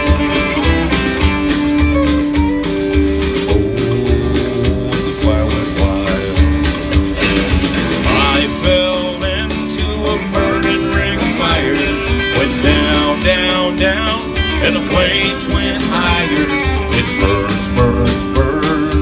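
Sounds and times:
country music over speakers: 0:00.0 - 0:19.0
man singing into a microphone: 0:03.5 - 0:06.5, 0:07.9 - 0:19.0.

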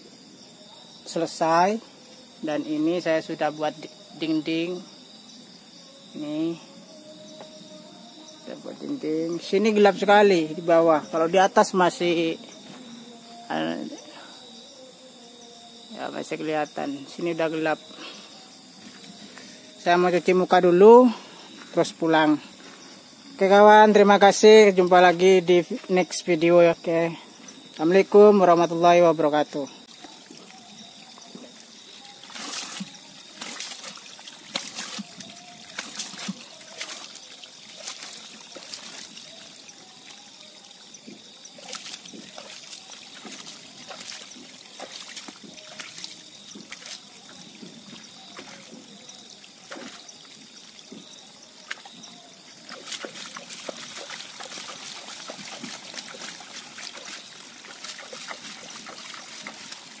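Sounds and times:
hands splashing water: 0:29.9 - 0:51.0, 0:51.6 - 1:00.0.

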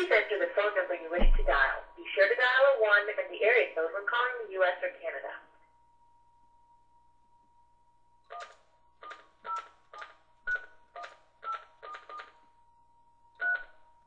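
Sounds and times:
faint steady tone: 0:00.0 - 0:09.0, 0:12.1 - 0:14.0
touch-tone keypad beeps: 0:08.3 - 0:09.7, 0:10.5 - 0:12.3, 0:13.4 - 0:13.7.

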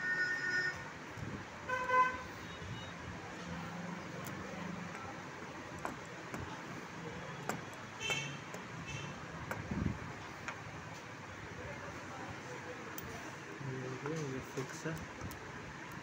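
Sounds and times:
vehicle horn: 0:01.7 - 0:03.0.

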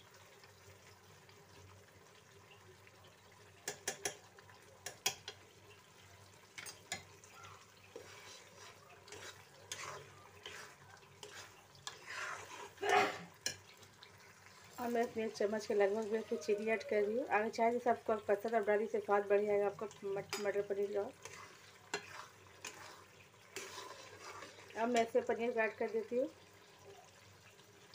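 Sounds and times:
low sizzle: 0:00.0 - 0:27.9
spoon clinking against pan: 0:03.6 - 0:04.2
spoon scraping a pan: 0:03.6 - 0:05.5, 0:06.5 - 0:15.2, 0:20.2 - 0:25.3.

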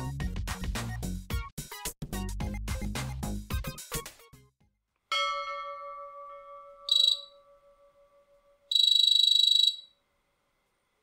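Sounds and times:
bell-like ding: 0:05.1 - 0:09.0
high electronic trilling buzzes: 0:06.9 - 0:07.4, 0:08.7 - 0:09.9.

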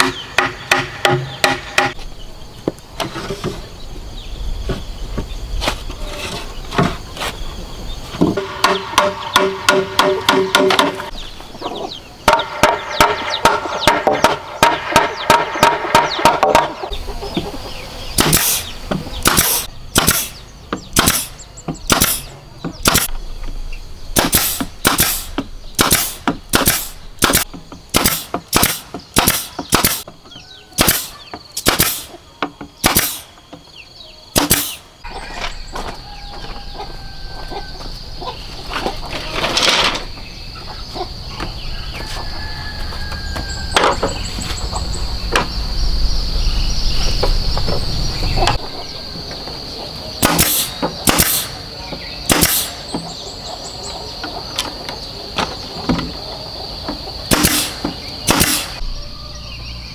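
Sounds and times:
hammer tapping bamboo poles: 0:00.0 - 0:02.0, 0:08.2 - 0:11.1, 0:12.3 - 0:16.8
nail gun firing: 0:18.2 - 0:18.6, 0:19.2 - 0:23.1, 0:24.2 - 0:30.1, 0:30.8 - 0:32.1, 0:32.8 - 0:33.3, 0:34.4 - 0:34.8, 0:50.2 - 0:51.6, 0:52.3 - 0:52.8, 0:57.3 - 0:58.8.

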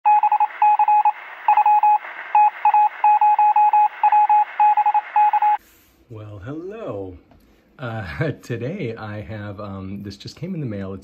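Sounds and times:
morse code beeping: 0:00.1 - 0:05.6
radio static: 0:00.2 - 0:05.6.

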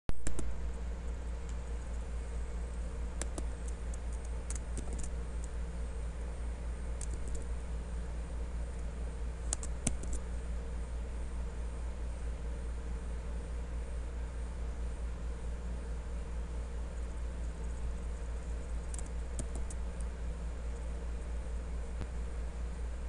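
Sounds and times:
low electrical hum: 0:00.1 - 0:23.0
keystrokes: 0:00.2 - 0:00.6, 0:03.2 - 0:05.6, 0:07.0 - 0:07.5, 0:09.5 - 0:10.2, 0:18.8 - 0:19.8
mouse clicks: 0:00.2 - 0:00.6, 0:03.2 - 0:05.6, 0:07.0 - 0:07.5, 0:09.5 - 0:10.2, 0:18.8 - 0:20.1.

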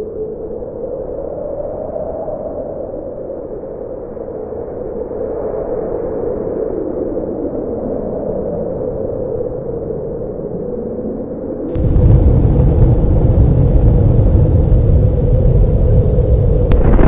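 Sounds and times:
steady rushing rumble: 0:11.7 - 0:17.0.

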